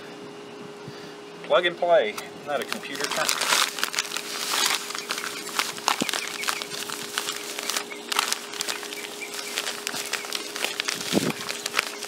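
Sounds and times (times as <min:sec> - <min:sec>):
sand bag crinkling and rustling: 0:02.5 - 0:12.0.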